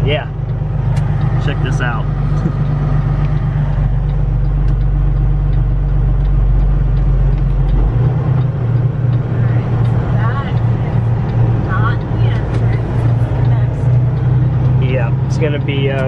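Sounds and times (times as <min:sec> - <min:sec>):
truck engine drone: 0:00.0 - 0:16.0.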